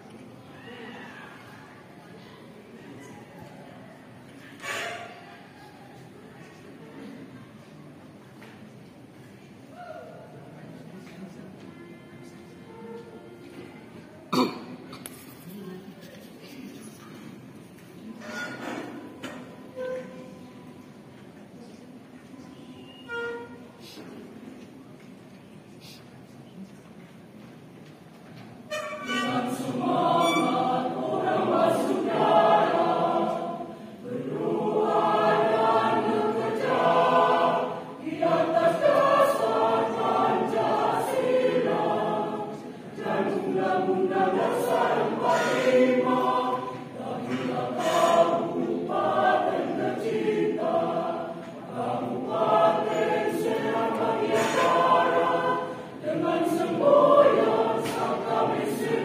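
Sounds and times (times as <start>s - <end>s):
mixed choir singing in parts: 28.7s - 59.0s.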